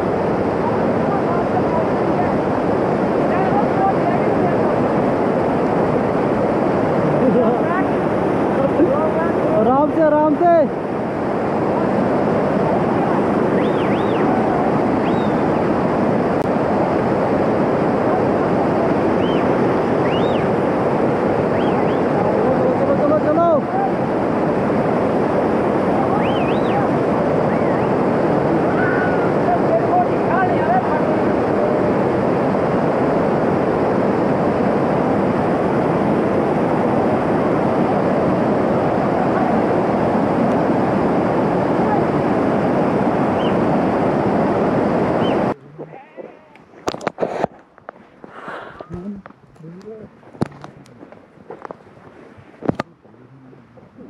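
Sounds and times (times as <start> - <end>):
stream rushing over boulders: 0.0 - 53.0.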